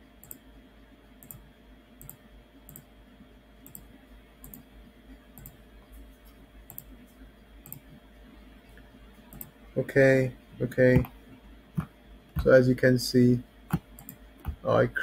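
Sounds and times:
low electrical hum: 0.0s - 15.0s
computer mouse clicking: 0.2s - 0.4s, 1.2s - 2.9s, 3.6s - 4.7s, 5.4s - 5.6s, 6.2s - 7.0s, 7.6s - 8.0s, 9.3s - 9.6s, 13.7s - 14.6s.

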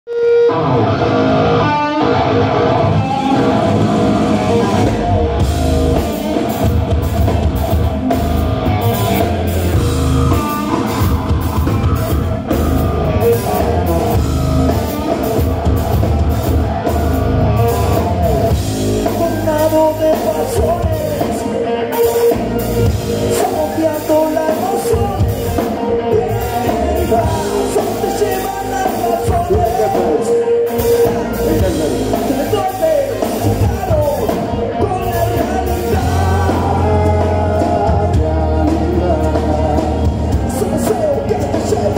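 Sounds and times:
bass guitar: 0.1s - 41.9s
electric guitars: 0.1s - 41.9s
drum kit pounding: 3.0s - 41.9s
person singing: 8.6s - 41.9s.

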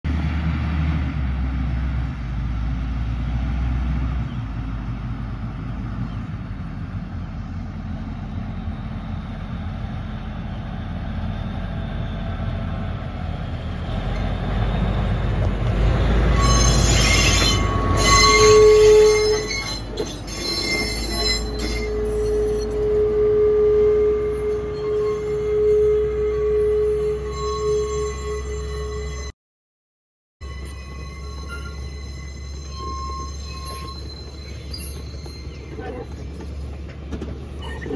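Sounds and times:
diesel locomotive engine rumble: 0.0s - 29.3s, 30.4s - 37.9s
train wheels squealing and clattering: 14.0s - 23.4s, 30.4s - 37.9s
long steady tone: 30.4s - 34.6s.

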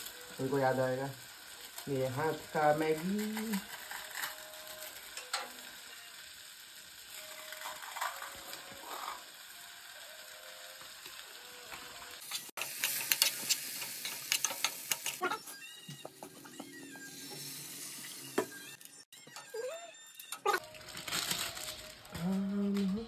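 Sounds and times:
noodles scraping in a frying pan: 0.0s - 15.5s, 20.4s - 22.6s
noodles frying with sharp crackles: 0.0s - 23.0s.

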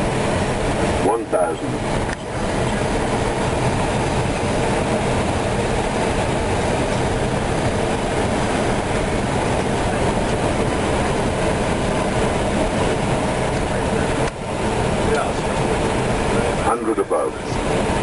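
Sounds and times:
cockpit airflow and engine noise: 0.0s - 18.0s.

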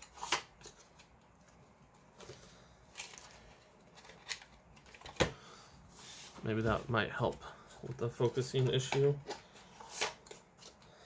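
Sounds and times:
cards clicking and scraping: 2.2s - 5.4s, 8.6s - 11.0s.

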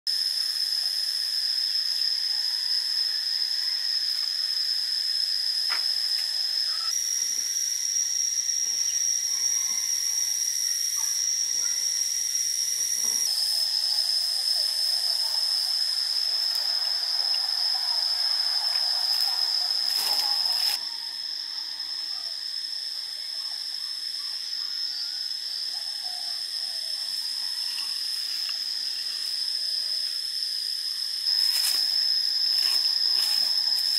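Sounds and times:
insects droning: 0.1s - 33.9s.

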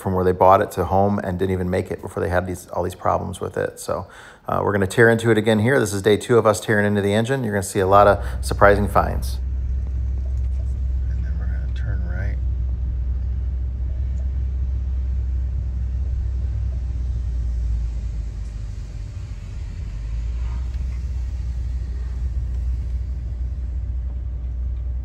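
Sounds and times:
car driving slowly from inside: 7.8s - 25.0s.

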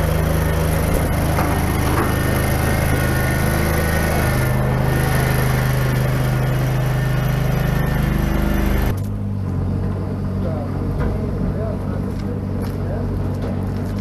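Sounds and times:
small petrol engine running: 0.0s - 9.6s.

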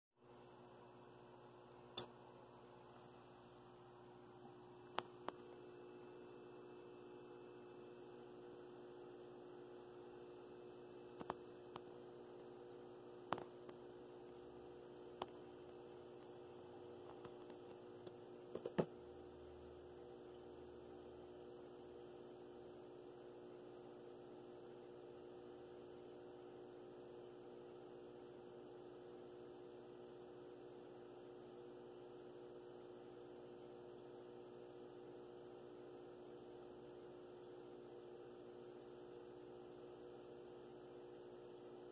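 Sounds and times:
faint electrical hum: 0.2s - 41.9s.

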